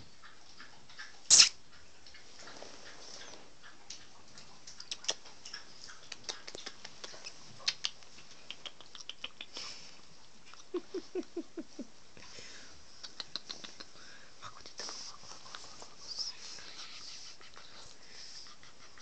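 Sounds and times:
wet kissing and licking: 0:01.3 - 0:01.6, 0:04.7 - 0:09.6, 0:13.0 - 0:14.0.

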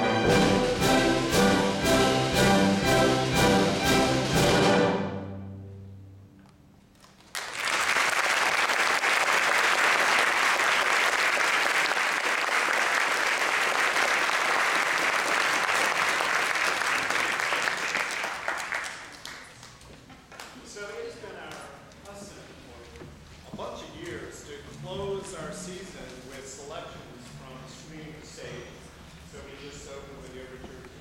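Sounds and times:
orchestra chord: 0:00.0 - 0:06.4
audience applause: 0:07.2 - 0:19.8.

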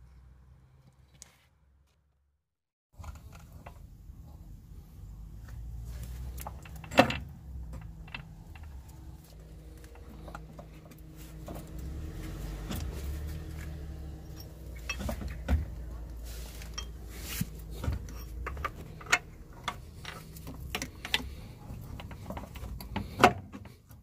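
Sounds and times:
metal clinks and knocks: 0:06.3 - 0:10.7, 0:14.1 - 0:23.3.

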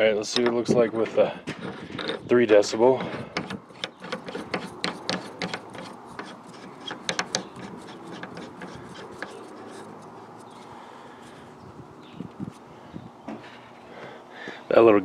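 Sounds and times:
antenna clicking and scraping on threads: 0:02.9 - 0:12.7.

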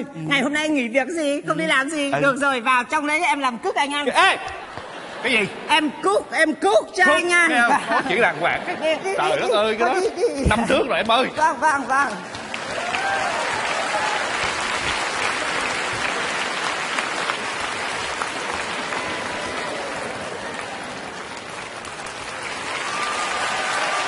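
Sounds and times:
audience applauding: 0:10.7 - 0:24.0.

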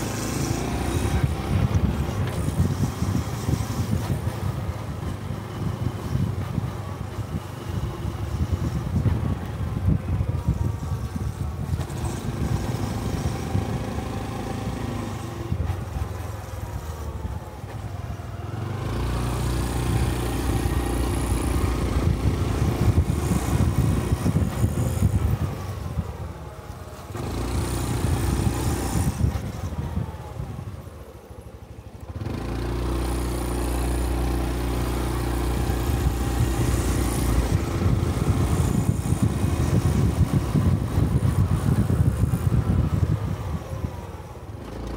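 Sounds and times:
motorcycle engine revving: 0:00.0 - 0:04.7, 0:18.3 - 0:26.0, 0:27.1 - 0:30.6, 0:32.1 - 0:44.9.

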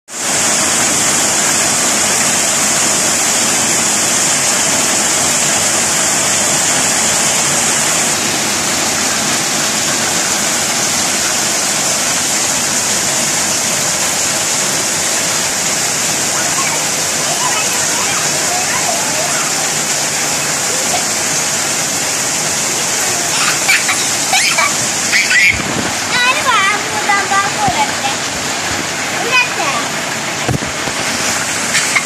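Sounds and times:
heavy rain pouring: 0:00.1 - 0:32.0.

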